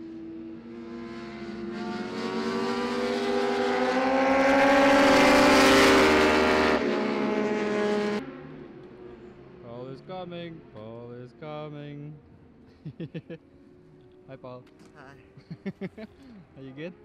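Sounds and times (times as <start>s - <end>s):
motorcycle engines accelerating: 0.0s - 17.0s.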